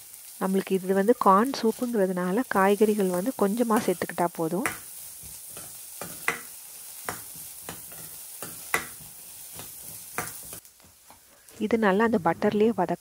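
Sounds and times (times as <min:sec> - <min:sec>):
vegetables sizzling in a pan: 0:00.0 - 0:13.0
spatula scraping a pan: 0:05.0 - 0:12.7.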